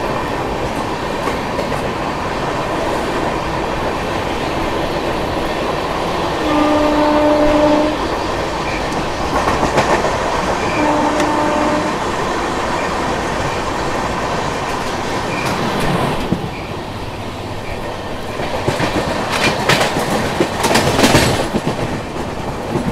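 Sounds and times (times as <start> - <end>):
train wheel and wind rushing: 0.0 - 22.9
train horn: 6.4 - 8.1, 10.6 - 12.0
wheel clatter over rail joints: 12.6 - 22.9.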